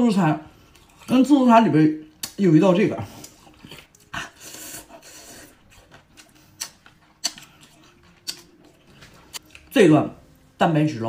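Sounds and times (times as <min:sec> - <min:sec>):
wet chewing: 0:00.6 - 0:01.3, 0:02.1 - 0:09.8
sharp mouth smacks: 0:02.2 - 0:02.4, 0:06.2 - 0:07.5, 0:08.2 - 0:08.5.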